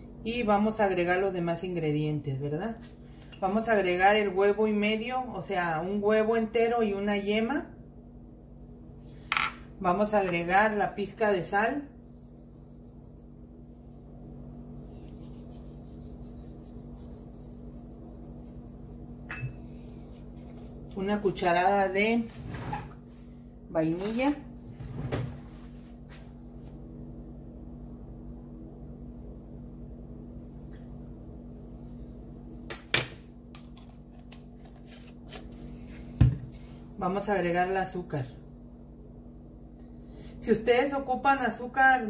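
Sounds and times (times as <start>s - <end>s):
steady low hum: 0.0s - 42.0s
fingers sprinkling salt: 14.9s - 19.2s.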